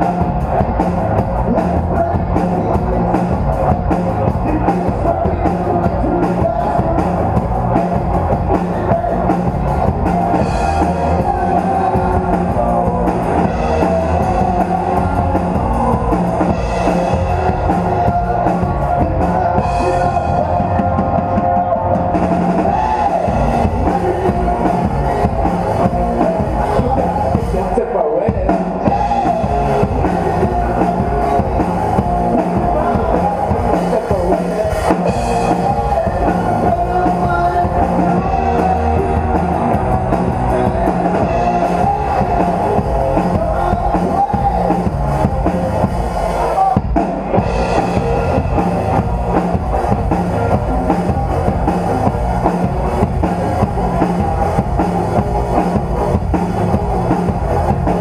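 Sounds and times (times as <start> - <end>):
live rock band playing: 0.0 - 58.0.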